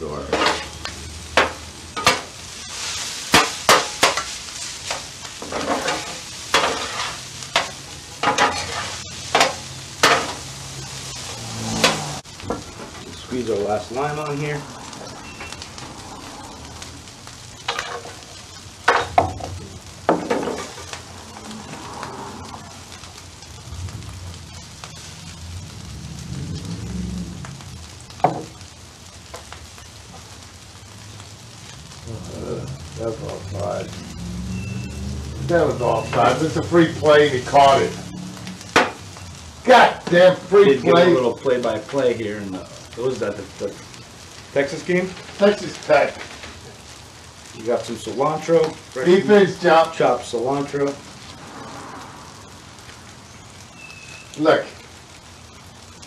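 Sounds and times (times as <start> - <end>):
rice sizzling in oil: 0.0 - 56.0
metal spatulas scraping griddle: 0.2 - 0.8, 1.4 - 10.4, 11.5 - 12.2.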